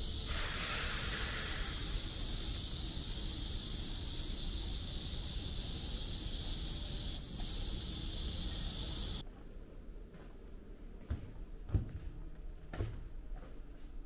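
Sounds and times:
insect chorus droning: 0.0s - 9.2s.

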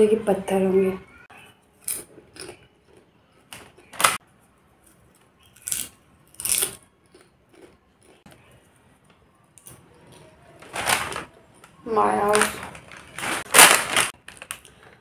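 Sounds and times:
foil snack pouch crinkling: 12.3s - 15.0s.

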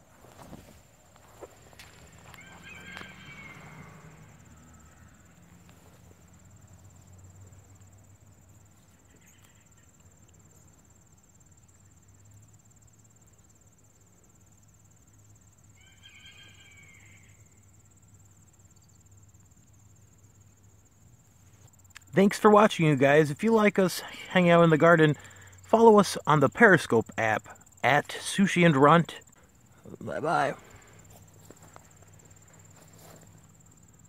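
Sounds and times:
crickets trilling: 0.0s - 34.0s
short pitched calls: 2.1s - 4.3s.

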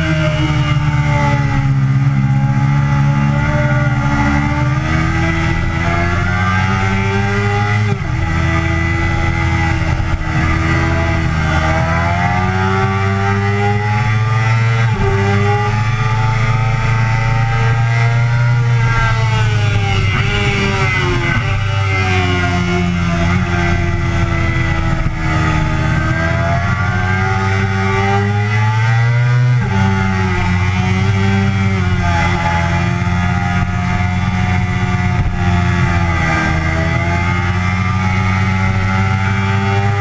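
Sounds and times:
motorcycle engine running hard: 0.0s - 40.0s
wind rush: 18.7s - 26.4s.

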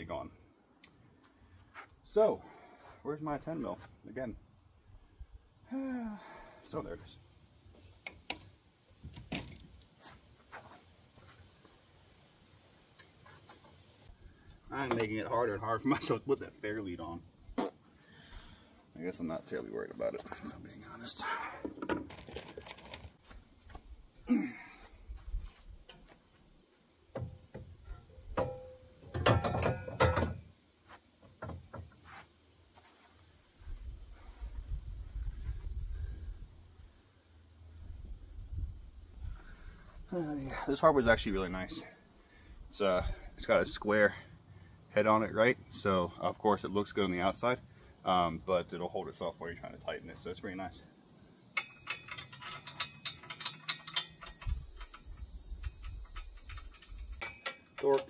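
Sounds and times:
ratchet wrench clicking: 51.5s - 57.8s
metal clicks and clinks: 51.5s - 58.0s.

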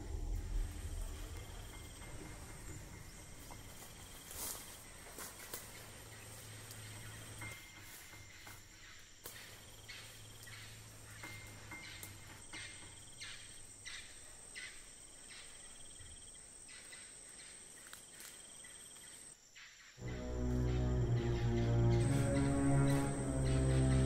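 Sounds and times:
insect rasping call: 0.0s - 24.0s
high-pitched insect whine: 20.0s - 24.0s.

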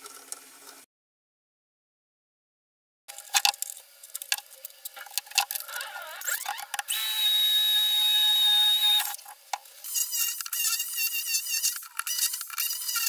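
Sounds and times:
cordless drill whining: 5.7s - 9.2s.

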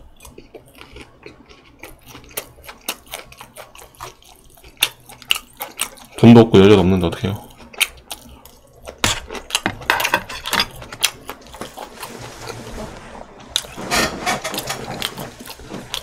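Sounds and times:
chewing food: 0.0s - 16.0s.

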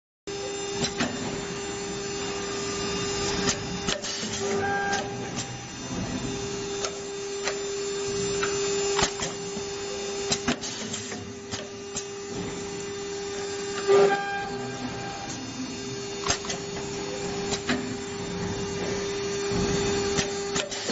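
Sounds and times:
machine motor humming: 0.3s - 20.9s
machine clicks and knocks: 10.2s - 12.7s, 16.2s - 20.9s.

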